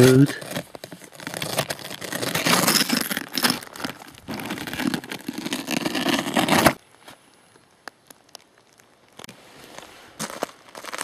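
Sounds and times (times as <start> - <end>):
hand scraping rough rock: 0.0 - 6.8.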